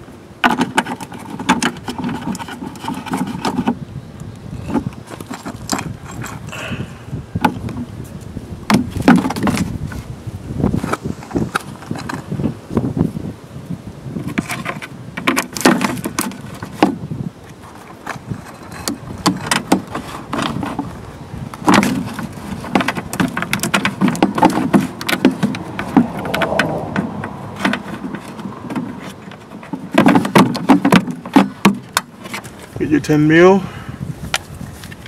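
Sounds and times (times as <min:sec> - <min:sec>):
metal heat shield rattling: 0:17.9 - 0:32.6.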